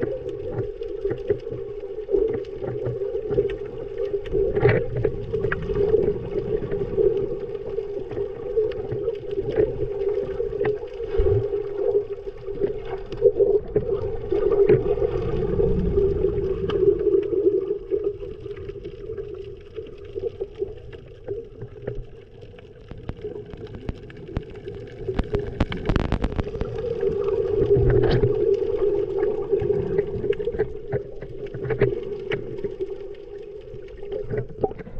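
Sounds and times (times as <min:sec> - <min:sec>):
gurgling bubbles: 0:00.0 - 0:34.9
scattered clicks: 0:22.9 - 0:26.8.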